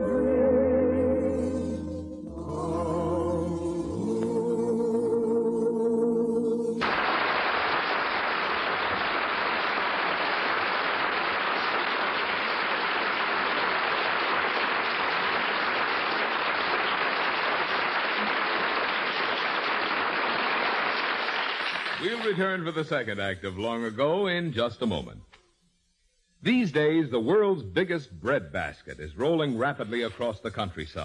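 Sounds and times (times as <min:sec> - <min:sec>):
music: 0:00.0 - 0:06.8
audience applauding: 0:06.8 - 0:22.4.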